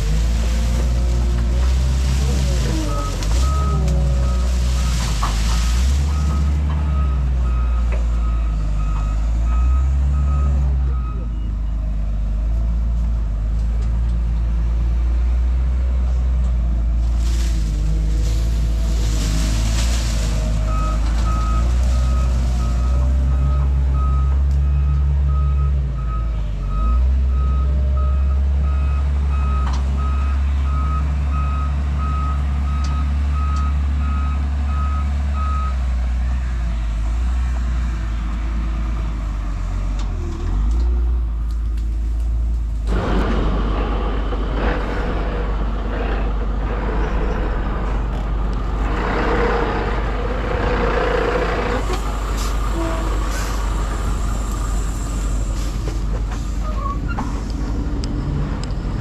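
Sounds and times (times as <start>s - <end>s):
diesel engine running: 0.0s - 59.0s
reversing alarm beeping: 2.8s - 11.8s.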